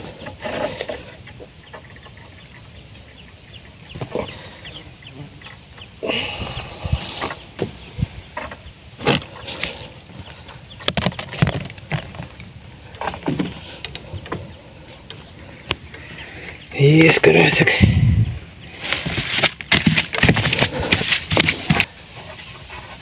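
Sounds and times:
fishing gear knocking and rustling: 7.0s - 16.0s, 18.8s - 21.9s.

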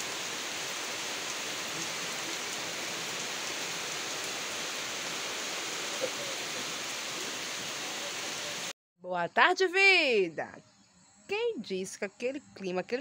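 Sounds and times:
steady rain falling: 0.0s - 8.7s.

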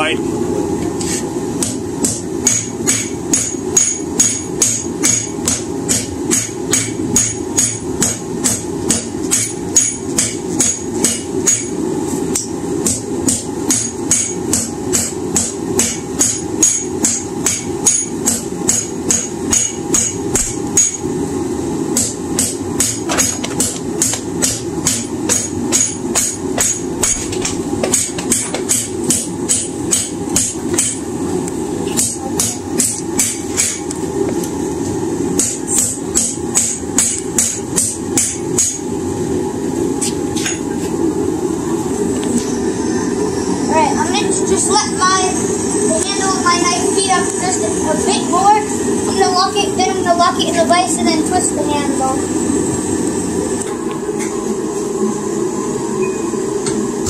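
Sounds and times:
hammer ringing on anvil: 12.3s - 21.0s.

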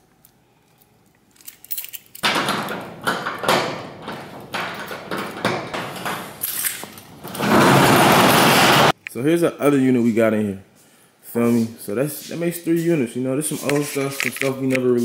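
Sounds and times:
metal roll-up door rattling: 2.2s - 8.9s.

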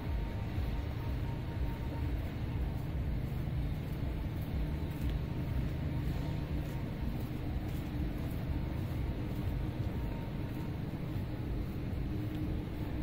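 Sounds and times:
faint steady hum: 0.0s - 13.0s
low city rumble: 0.0s - 13.0s.

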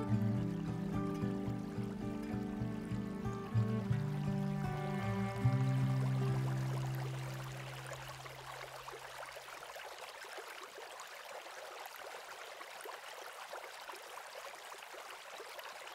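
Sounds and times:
soundtrack music held notes: 0.0s - 8.2s
running stream: 0.0s - 15.9s.

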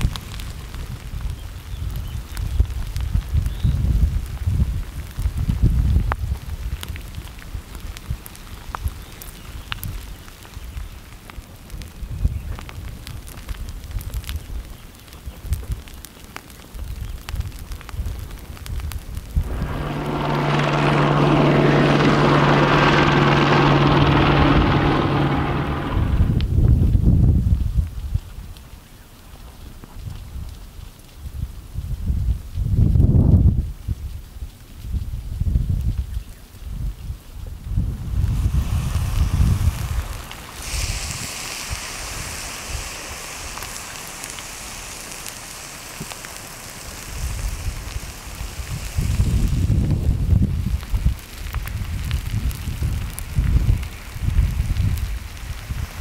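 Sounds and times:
wind gusts on microphone: 0.0s - 10.1s, 16.8s - 28.5s, 30.0s - 56.0s
lava steaming hiss: 0.0s - 56.0s
helicopter engine and rotor drone: 19.4s - 26.4s.

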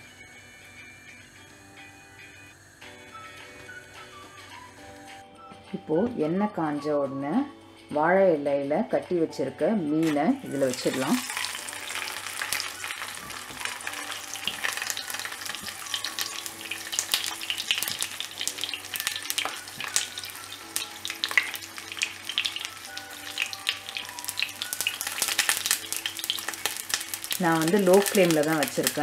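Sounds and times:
oil sizzling and crackling: 10.0s - 29.0s.

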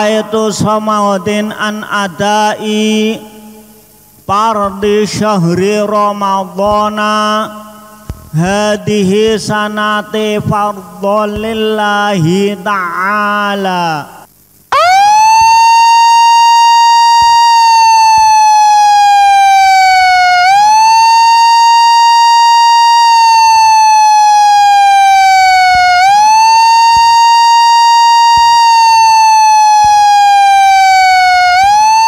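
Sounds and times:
siren wailing: 14.7s - 32.0s.

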